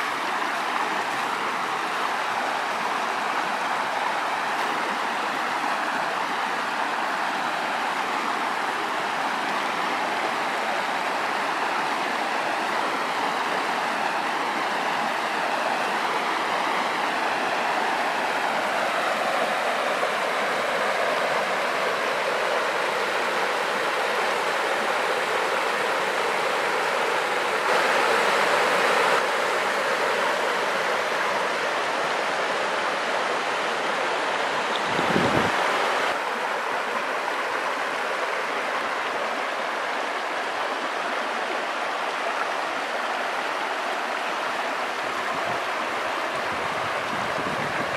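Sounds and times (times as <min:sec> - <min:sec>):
stream rushing over stones: 0:00.0 - 0:47.9.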